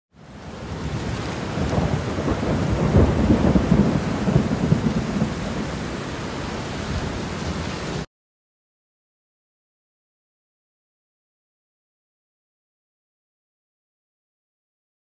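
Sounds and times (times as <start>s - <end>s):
steady rain: 0.1s - 8.1s
rolling thunder: 0.6s - 6.0s.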